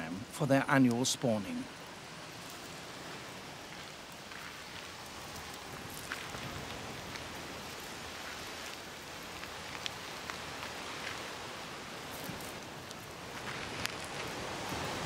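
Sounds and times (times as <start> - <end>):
crabs scuttling over rocks: 1.7 - 15.0.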